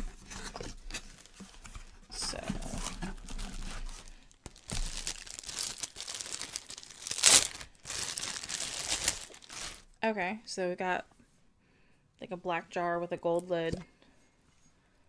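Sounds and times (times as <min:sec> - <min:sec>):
plastic wrap crinkling and tearing: 0:00.4 - 0:10.0.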